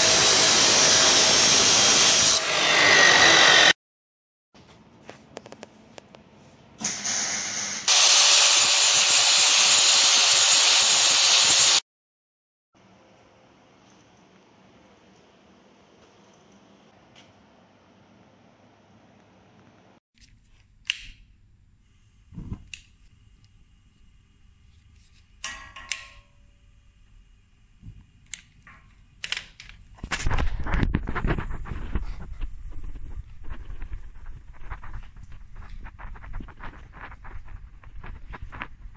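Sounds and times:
angle grinder grinding steel: 0:00.0 - 0:03.8, 0:07.8 - 0:11.8.

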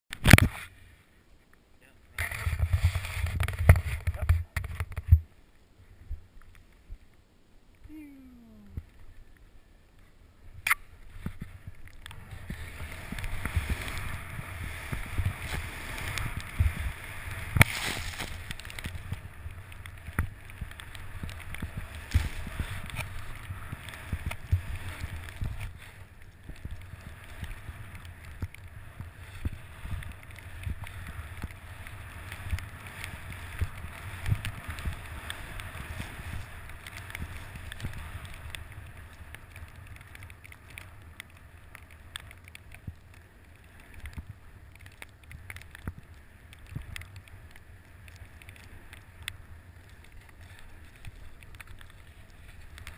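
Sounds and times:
wind rumble on microphone: 0:02.1 - 0:05.3, 0:10.4 - 0:52.9
snowboard hissing through snow: 0:12.2 - 0:19.4.

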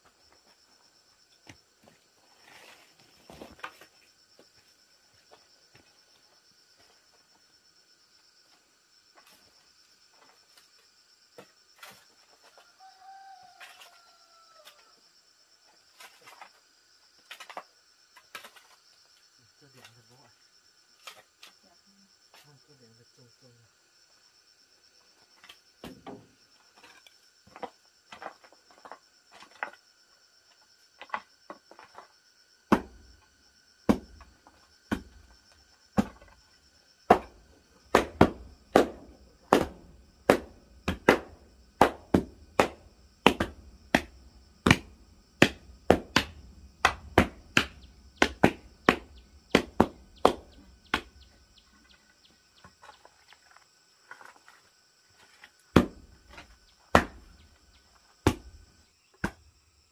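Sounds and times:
wooden blocks knocking earth floor: 0:01.3 - 0:06.2, 0:16.0 - 0:18.8, 0:25.3 - 0:59.5.

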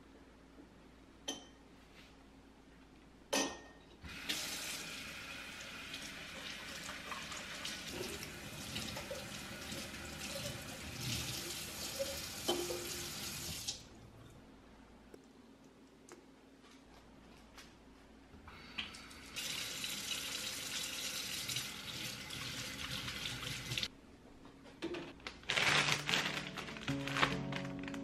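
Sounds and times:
tap water running into steel sink: 0:04.1 - 0:13.8, 0:19.4 - 0:23.9.

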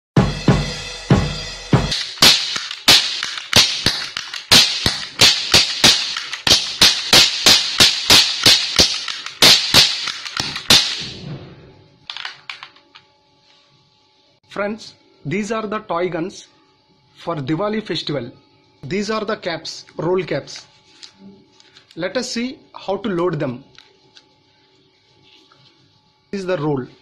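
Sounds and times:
cap pistols cracking: 0:01.9 - 0:11.1, 0:12.1 - 0:12.7.

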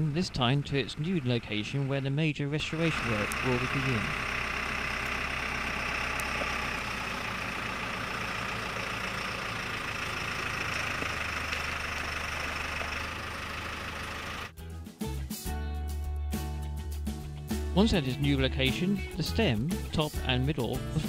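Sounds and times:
diesel engine running: 0:00.0 - 0:14.6.

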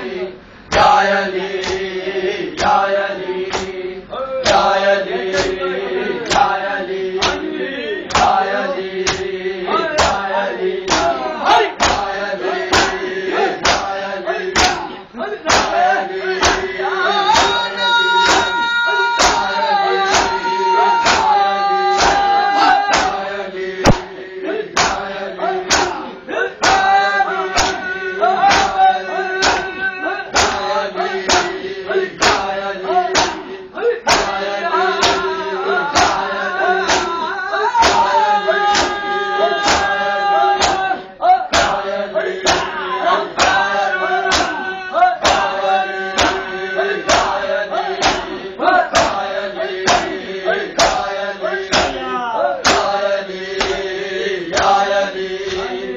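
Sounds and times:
men chanting a lament: 0:00.0 - 0:55.9
hands slapping bare chests: 0:09.0 - 0:09.3, 0:10.9 - 0:11.2, 0:11.8 - 0:12.1, 0:13.6 - 0:13.9, 0:14.6 - 0:14.8, 0:15.5 - 0:15.8, 0:21.0 - 0:21.4, 0:22.0 - 0:22.3, 0:22.9 - 0:23.2, 0:23.8 - 0:24.1, 0:24.8 - 0:25.0, 0:25.7 - 0:26.0, 0:27.6 - 0:27.8, 0:30.4 - 0:30.7, 0:31.3 - 0:31.6, 0:33.2 - 0:33.4, 0:34.1 - 0:34.4, 0:35.0 - 0:35.3, 0:36.0 - 0:37.2, 0:37.8 - 0:38.1, 0:38.7 - 0:39.0, 0:39.6 - 0:40.0, 0:44.3 - 0:44.6, 0:46.2 - 0:46.4, 0:48.0 - 0:48.3, 0:49.9 - 0:50.2, 0:50.8 - 0:51.1, 0:51.7 - 0:52.0, 0:52.6 - 0:53.0, 0:53.6 - 0:53.9.

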